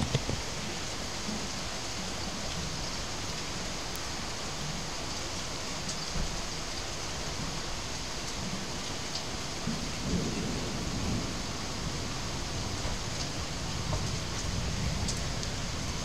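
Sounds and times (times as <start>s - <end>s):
steady rain: 0.0s - 16.0s
thunder rumbling: 9.6s - 16.0s.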